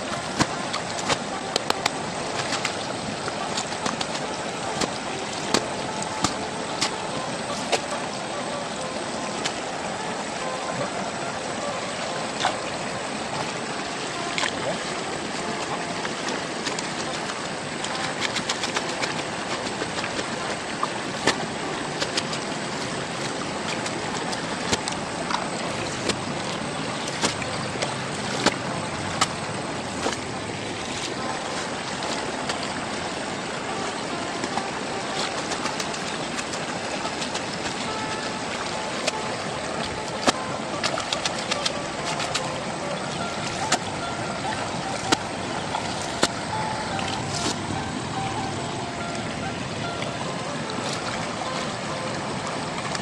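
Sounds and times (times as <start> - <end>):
gravel clicks and water splashes: 0.0 - 8.3, 12.4 - 48.6
flowing river water: 0.0 - 53.0.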